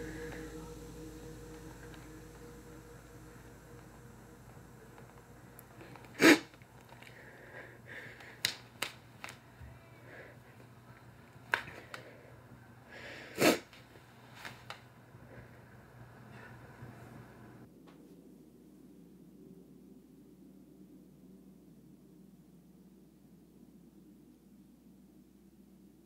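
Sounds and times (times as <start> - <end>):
woman breathing sharply: 0.0 - 8.4.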